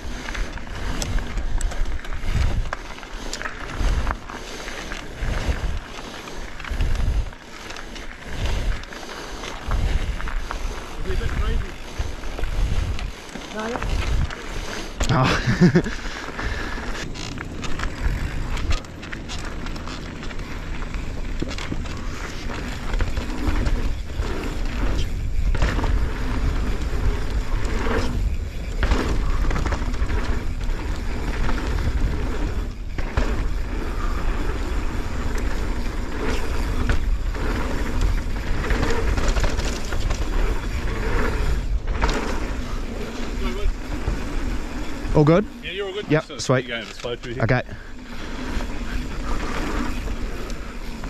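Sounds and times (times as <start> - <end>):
wind rush on microphone: 0.0 - 17.1, 20.4 - 51.0
bike tyre noise: 0.0 - 51.0
bike knocks and rattles: 17.0 - 45.1.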